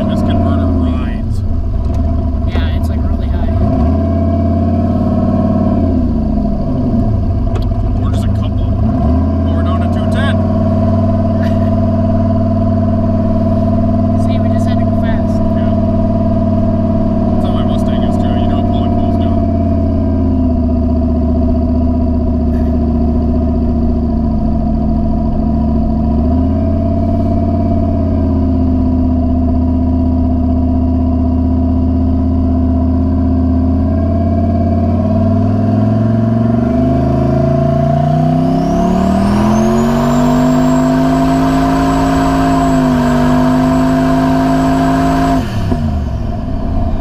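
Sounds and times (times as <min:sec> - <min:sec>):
car engine accelerating: 0:00.0 - 0:47.0
high turbo whistle: 0:38.3 - 0:47.0.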